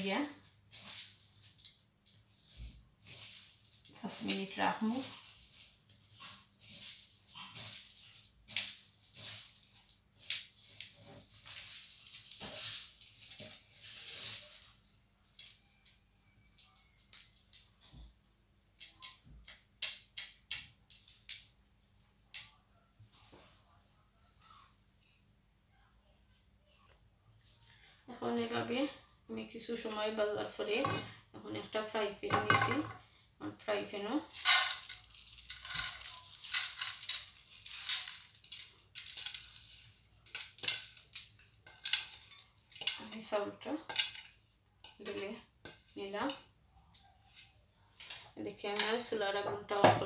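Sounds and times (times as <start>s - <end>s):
rice scraping against plate: 0.4s - 14.8s.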